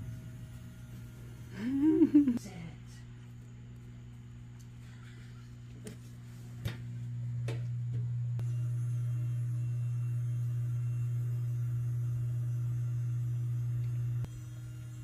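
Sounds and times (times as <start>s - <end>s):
small motor humming: 0.0s - 2.4s, 7.1s - 15.0s.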